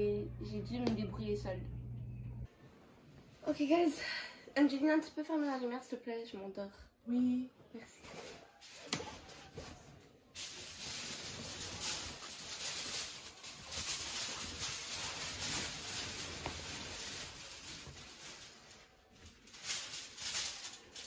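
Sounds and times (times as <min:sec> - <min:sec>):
foil blanket crinkling: 0:10.3 - 0:21.0.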